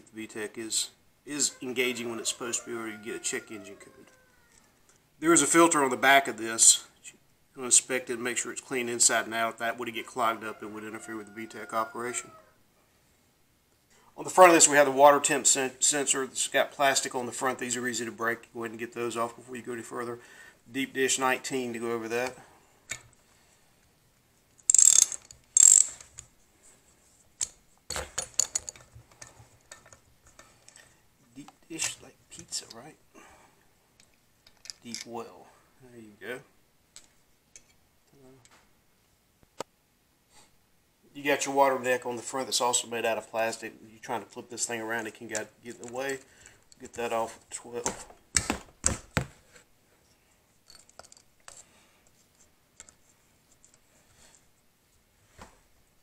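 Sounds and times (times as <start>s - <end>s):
tool ticks: 24.6s - 26.0s
ratchet wrench clicking: 24.7s - 26.0s.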